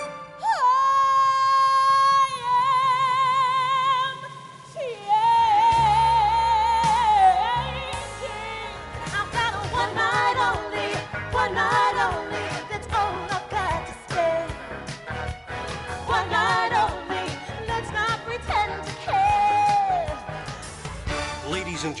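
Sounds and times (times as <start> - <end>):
singing with band backing: 4.8 - 14.6.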